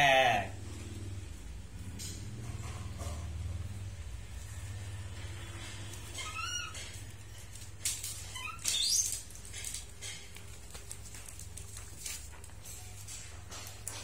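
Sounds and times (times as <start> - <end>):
baby monkey squeaking: 6.2 - 6.8, 8.3 - 9.2.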